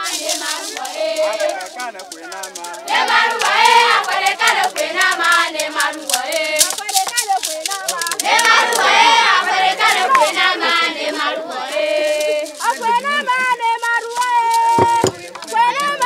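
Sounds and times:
group singing: 0:00.0 - 0:01.8, 0:02.6 - 0:13.5, 0:14.5 - 0:16.0
sticks on barrel drums: 0:00.0 - 0:08.8, 0:14.0 - 0:16.0
hand claps: 0:00.0 - 0:10.5, 0:11.8 - 0:16.0.

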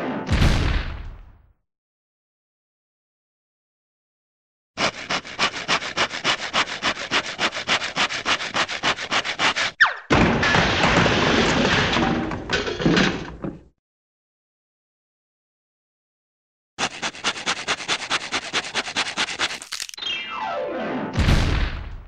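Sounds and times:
hand saw cutting wood: 0:04.8 - 0:09.8, 0:16.8 - 0:20.0.

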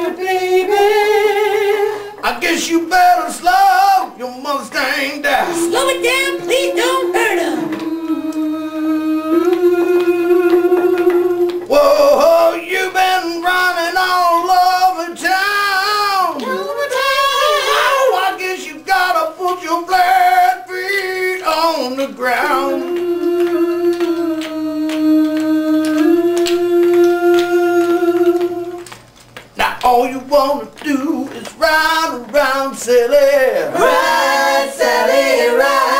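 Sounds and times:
person singing wordless run: 0:29.6 - 0:33.6.

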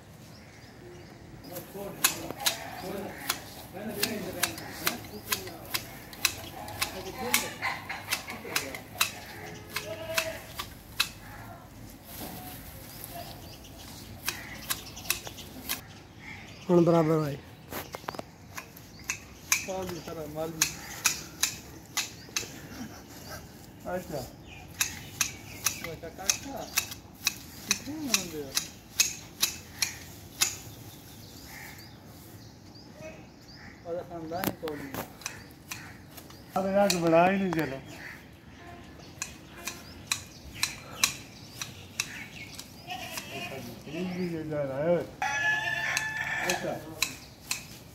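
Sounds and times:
hedge shears snipping branches: 0:01.5 - 0:15.9, 0:17.7 - 0:23.1, 0:24.0 - 0:30.9, 0:34.4 - 0:38.1, 0:39.0 - 0:44.1, 0:45.8 - 0:47.9.

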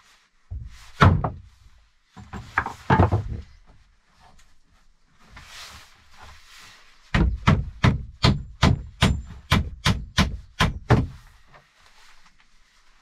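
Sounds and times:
hammer striking wooden planks: 0:01.0 - 0:01.5, 0:07.1 - 0:11.3.

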